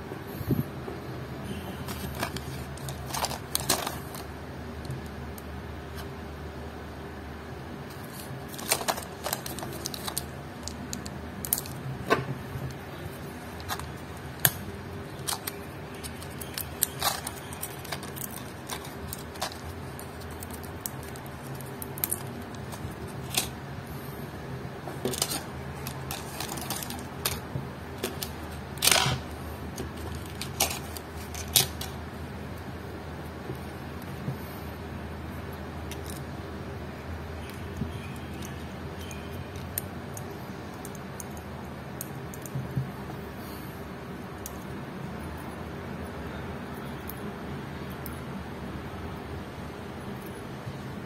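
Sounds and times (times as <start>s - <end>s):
low steady hum: 0.0s - 51.0s.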